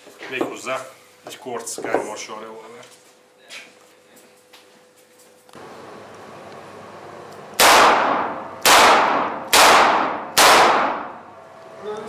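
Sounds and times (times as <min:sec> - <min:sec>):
revolver shots echoing indoors: 0:06.9 - 0:11.7.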